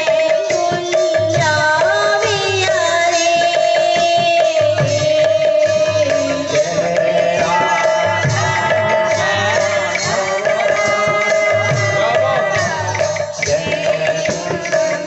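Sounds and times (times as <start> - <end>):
hand drum beating rhythm: 0.0 - 15.0.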